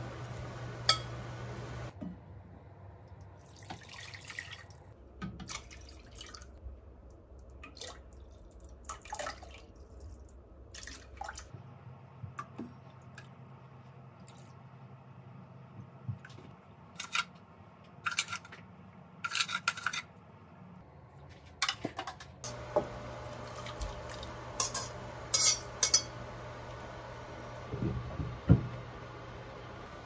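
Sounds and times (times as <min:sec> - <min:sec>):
pot boiling: 0:00.0 - 0:02.0, 0:22.5 - 0:30.0
metal tongs clink: 0:24.6 - 0:26.2.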